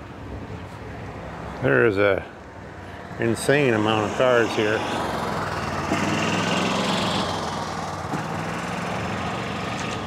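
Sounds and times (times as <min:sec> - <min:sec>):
small gasoline engine humming: 0:03.7 - 0:10.0.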